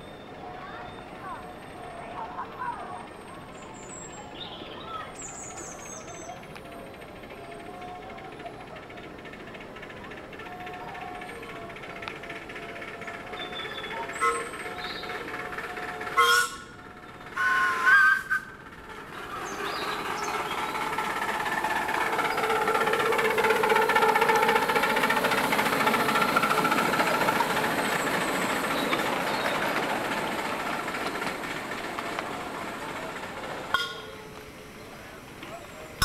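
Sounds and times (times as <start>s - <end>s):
miniature train passing: 0.0s - 36.0s
steam locomotive whistle: 10.5s - 29.8s.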